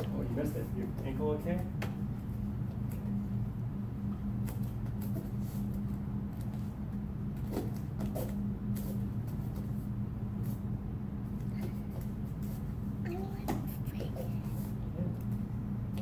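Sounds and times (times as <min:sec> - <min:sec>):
low hum: 0:00.0 - 0:16.0
bare feet tapping on mat: 0:07.3 - 0:09.8.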